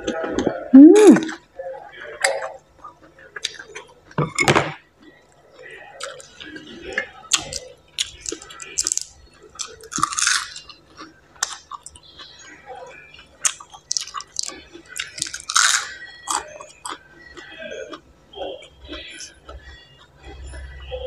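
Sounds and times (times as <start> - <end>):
chewing crisp cabbage: 0.0 - 21.0
wet mouth sounds: 0.8 - 1.4.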